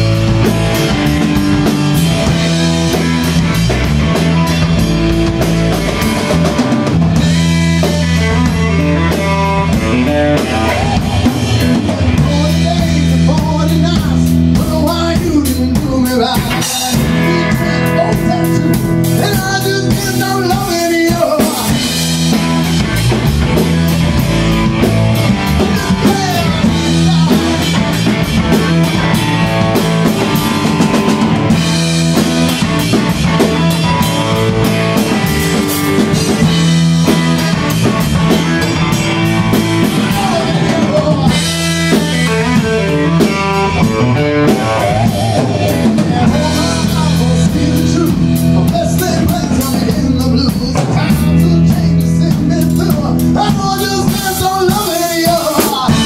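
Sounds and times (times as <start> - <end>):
drum kit with cymbals: 0.0 - 56.0
electric guitar: 0.0 - 56.0
man singing into a microphone: 10.4 - 22.1, 25.6 - 27.9, 39.8 - 43.8, 44.4 - 56.0.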